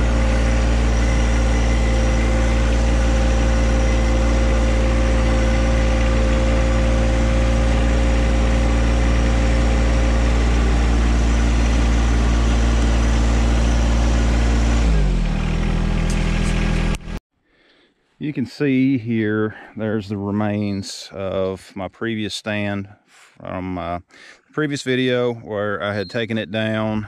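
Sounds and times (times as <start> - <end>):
tractor engine running: 0.0 - 17.2.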